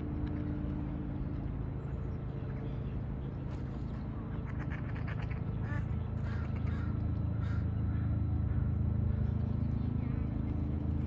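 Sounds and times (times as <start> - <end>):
low background rumble: 0.0 - 11.0
ducks quacking: 4.3 - 8.6.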